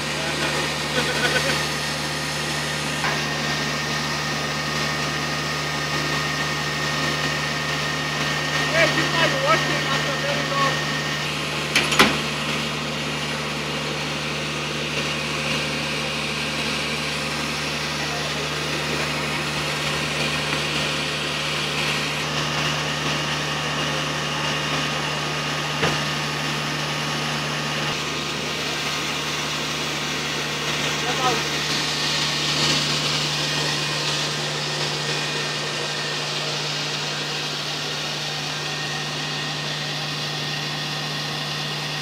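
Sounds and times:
fire engine running: 0.0 - 42.0.

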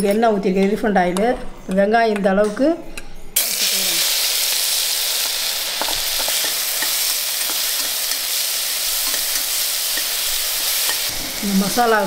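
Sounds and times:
onions sizzling in oil: 3.4 - 12.0.

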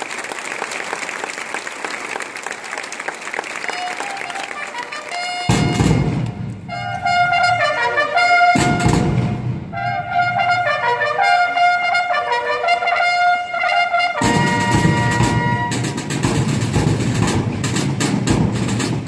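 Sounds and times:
bugles playing a melody: 3.6 - 19.0
drums striking: 5.5 - 6.5, 8.5 - 9.7, 14.2 - 19.0.

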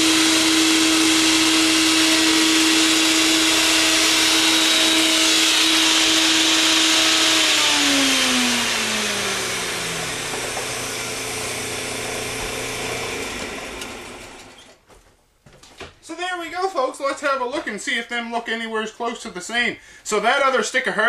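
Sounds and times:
motor whine winding down: 0.0 - 14.7.

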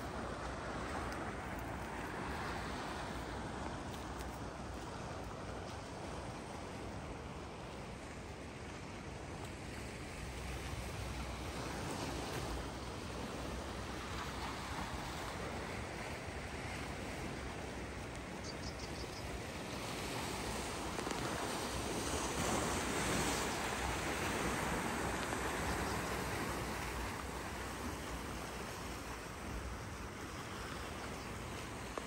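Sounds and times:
wind: 0.0 - 32.0
sea washing against rocks: 19.2 - 32.0.

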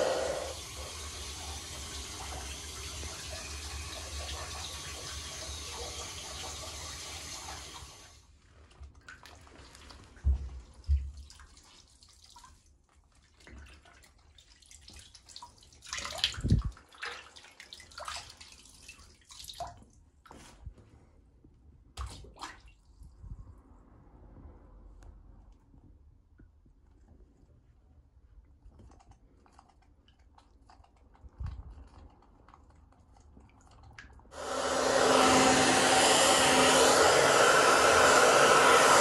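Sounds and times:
bathwater splashing and dripping: 0.0 - 7.9, 8.6 - 20.6, 21.9 - 23.0
tap water running: 0.0 - 8.2, 34.3 - 39.0.

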